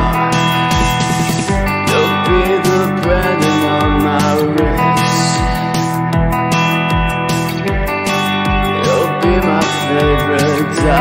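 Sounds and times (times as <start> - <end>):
drum beat with kick drum: 0.0 - 7.1
strummed and picked guitars: 0.0 - 11.0.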